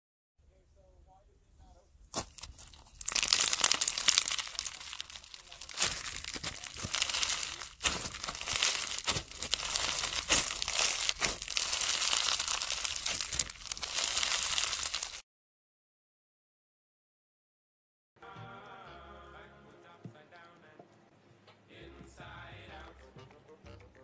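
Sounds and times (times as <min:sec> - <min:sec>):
slime crackling and popping: 0:02.1 - 0:15.2.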